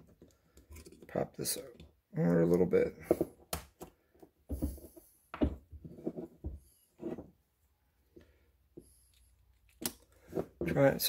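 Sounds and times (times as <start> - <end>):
tools knocking on wooden workbench: 4.5 - 5.8.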